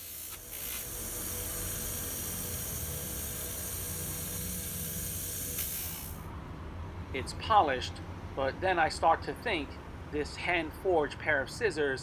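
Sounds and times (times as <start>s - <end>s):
bench grinder motor hum: 0.0s - 6.2s
scissors hissing on polishing wheel: 0.0s - 6.2s.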